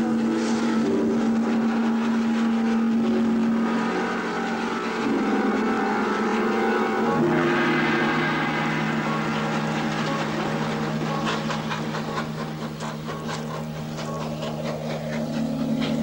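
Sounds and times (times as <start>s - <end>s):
passing train drone: 0.0s - 16.0s.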